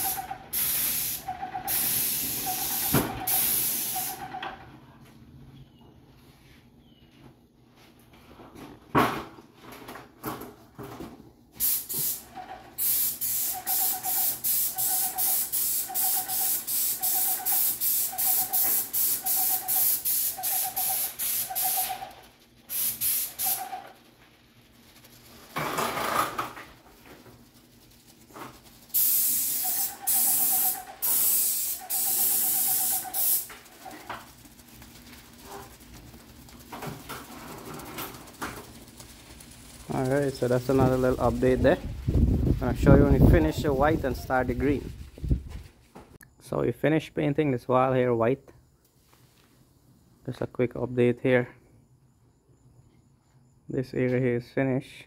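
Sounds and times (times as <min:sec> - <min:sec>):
paint spray gun hissing: 0:00.0 - 0:04.3, 0:11.6 - 0:25.6, 0:26.7 - 0:41.6.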